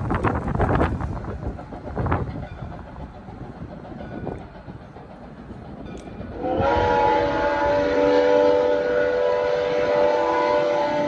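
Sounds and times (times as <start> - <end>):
steam locomotive chime whistle: 5.9 - 11.0.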